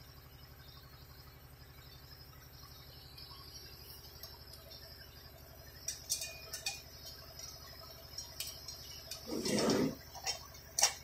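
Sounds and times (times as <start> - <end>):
steady low hum: 0.0 - 11.0
metal plate scraping: 9.1 - 10.4.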